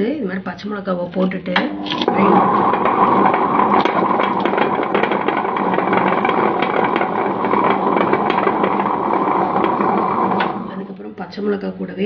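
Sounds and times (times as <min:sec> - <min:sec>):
wet grinder motor humming: 0:01.2 - 0:11.0.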